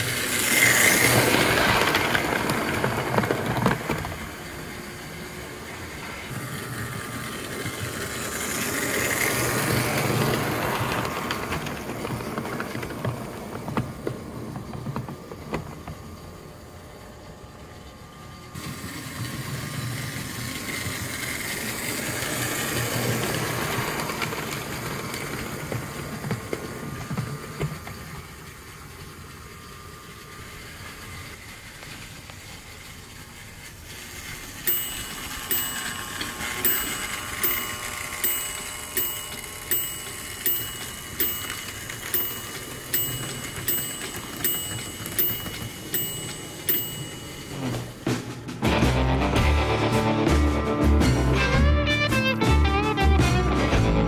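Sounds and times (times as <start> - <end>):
toy train rumbling on metal track: 0.0 - 48.6
crossing signal ticking: 34.7 - 47.9.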